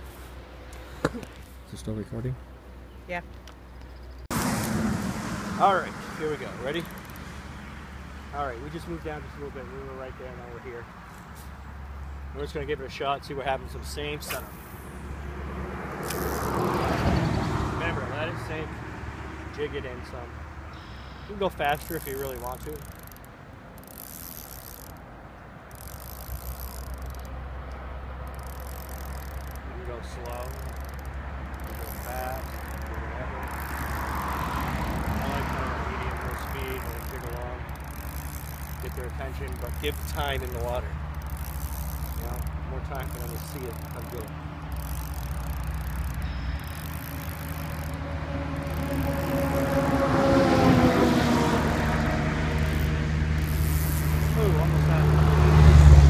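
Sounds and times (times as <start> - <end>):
low engine hum: 0.0 - 56.0
engine passing by: 4.3 - 56.0
fishing reel gears ticking: 6.2 - 7.5, 16.0 - 16.9, 20.7 - 50.1, 51.6 - 55.2.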